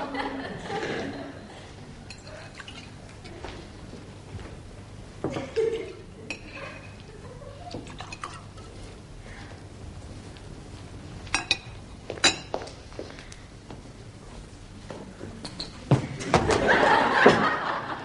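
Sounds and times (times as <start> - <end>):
glassware clinking: 2.1 - 3.0, 6.3 - 7.0, 11.3 - 12.6.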